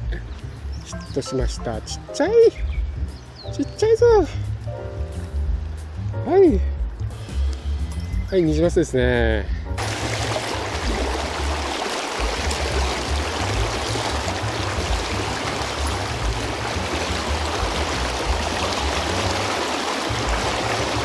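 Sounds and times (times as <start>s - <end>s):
river water rushing over rocks: 9.8s - 21.0s.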